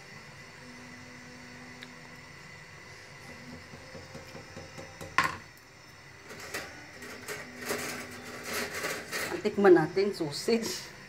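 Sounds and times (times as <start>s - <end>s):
ladle clinking and scraping: 6.3s - 9.5s.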